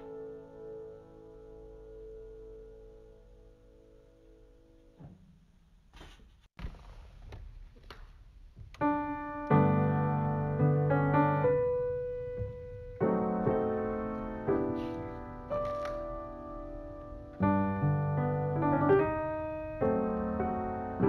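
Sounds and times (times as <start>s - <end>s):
slow solo piano music: 0.0s - 4.5s, 8.7s - 21.0s.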